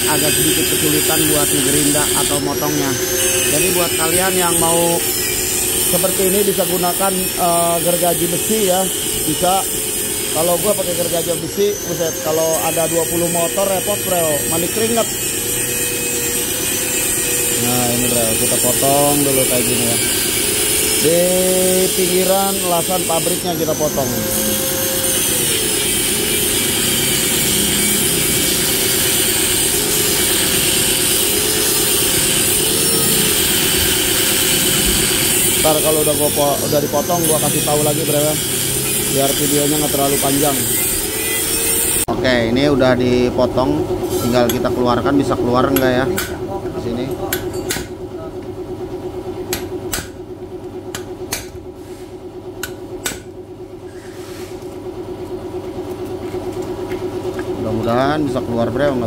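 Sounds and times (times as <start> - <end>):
angle grinder cutting metal: 0.0 - 42.2
steady low hum: 0.0 - 59.0.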